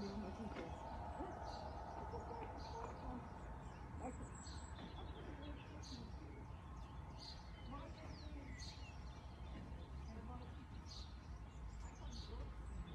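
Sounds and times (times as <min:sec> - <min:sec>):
steady low rumble: 0:00.0 - 0:10.2
birds chirping faintly: 0:00.0 - 0:12.9.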